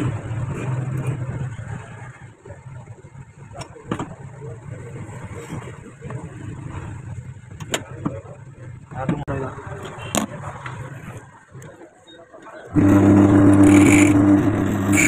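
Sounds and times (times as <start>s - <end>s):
low motor rumble: 12.7s - 15.0s.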